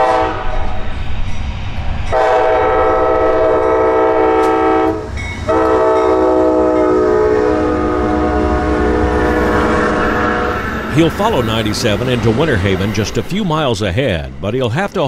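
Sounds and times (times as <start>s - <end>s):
train air horn blasts: 0.0s - 0.6s, 2.1s - 11.4s
train engines and wheels rumbling: 0.0s - 15.0s.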